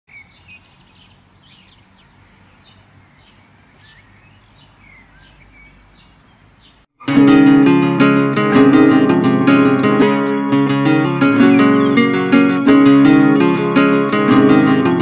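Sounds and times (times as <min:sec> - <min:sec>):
small birds chirping: 0:00.1 - 0:06.9, 0:10.8 - 0:15.0.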